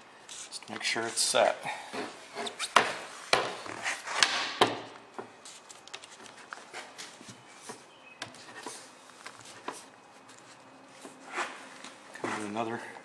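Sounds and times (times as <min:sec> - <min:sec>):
rubber rubbing on metal sash: 0:08.3 - 0:12.6.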